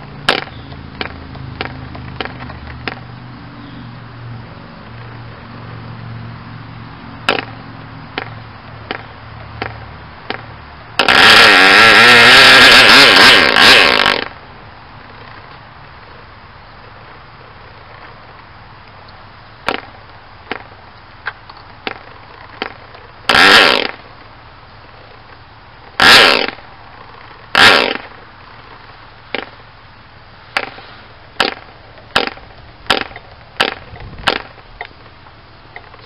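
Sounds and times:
model engine firing bursts: 0:00.2 - 0:01.1, 0:07.3 - 0:07.5, 0:10.3 - 0:14.4, 0:21.8 - 0:24.1, 0:25.9 - 0:28.2, 0:30.6 - 0:34.6
propeller flip snaps: 0:30.6 - 0:34.7.

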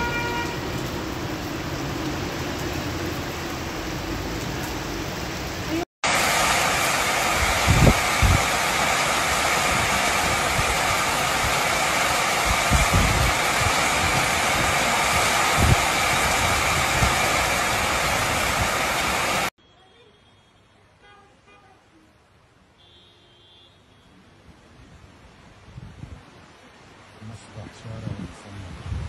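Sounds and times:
heavy rain in strong wind: 0:00.0 - 0:19.5, 0:24.1 - 0:29.0
rainy street ambience: 0:00.0 - 0:29.0
wind gusts thumping microphone: 0:07.0 - 0:19.5, 0:28.7 - 0:29.0.

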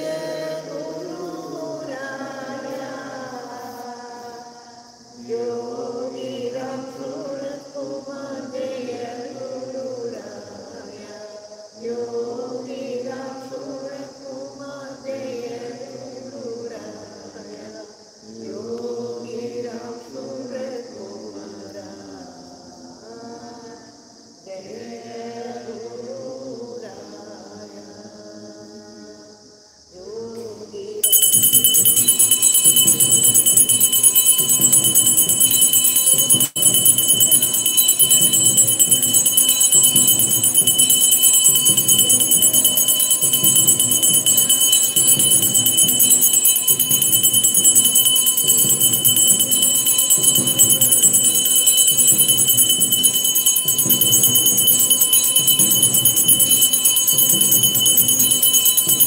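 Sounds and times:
bells ringing: 0:31.0 - 0:59.0
low repeating beat: 0:31.0 - 0:59.0.

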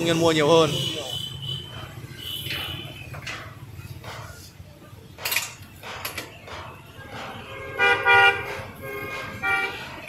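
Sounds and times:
street noise: 0:00.0 - 0:10.0
vehicle horn honking: 0:07.4 - 0:10.0.

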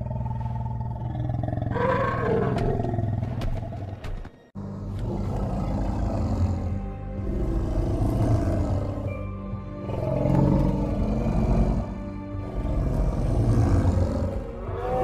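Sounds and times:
deep drawn-out beast roars: 0:04.6 - 0:15.0.

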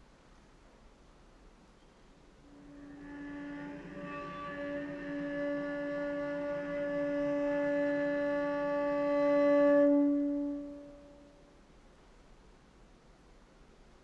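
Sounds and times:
cello bowed drone: 0:02.4 - 0:11.5.

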